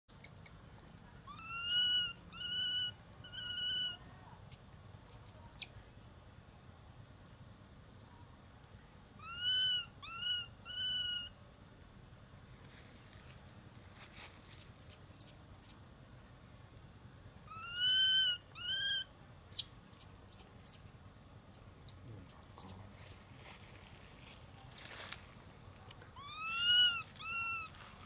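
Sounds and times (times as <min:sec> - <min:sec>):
infant monkey coo calls: 0:01.2 - 0:04.1, 0:09.2 - 0:11.4, 0:17.4 - 0:20.8, 0:21.8 - 0:23.2, 0:26.1 - 0:28.0.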